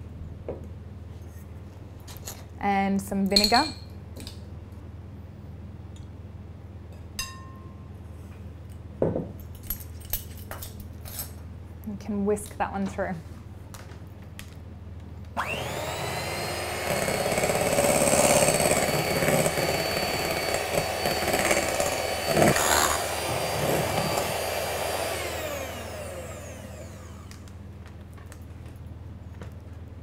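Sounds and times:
electric hand mixer whining: 15.4s - 27.5s.

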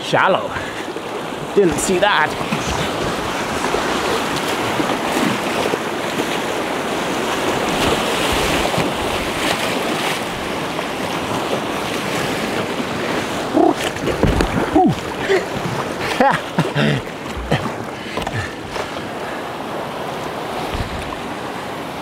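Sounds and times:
whitewater rushing over rocks: 0.0s - 22.0s.

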